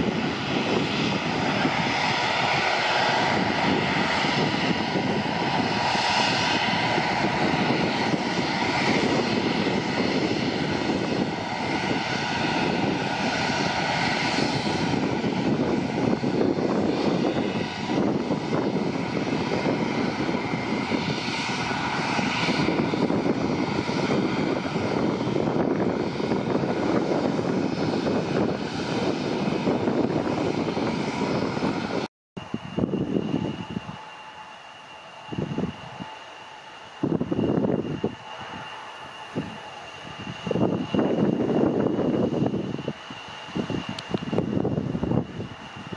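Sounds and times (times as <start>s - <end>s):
high fan whine: 0.0s - 45.9s
jet engine roar: 0.0s - 45.9s.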